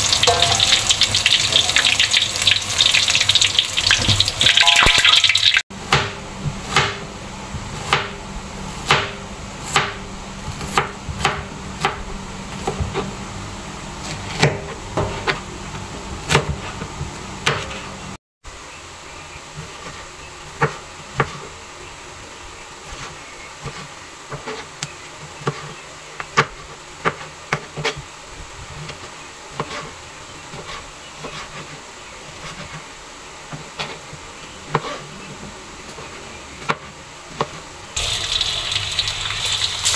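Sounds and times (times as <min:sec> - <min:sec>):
knife chopping on plastic board: 0:08.8 - 0:12.0, 0:25.4 - 0:28.0.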